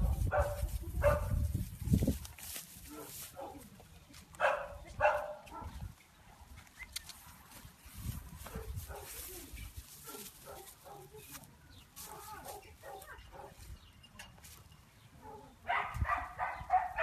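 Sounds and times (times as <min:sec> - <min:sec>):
dog yipping barks: 0:00.0 - 0:01.4, 0:04.4 - 0:05.8, 0:10.0 - 0:11.1, 0:15.2 - 0:17.0.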